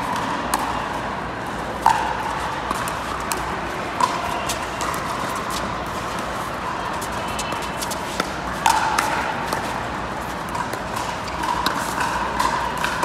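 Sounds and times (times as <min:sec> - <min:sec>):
background noise: 0:00.0 - 0:13.0.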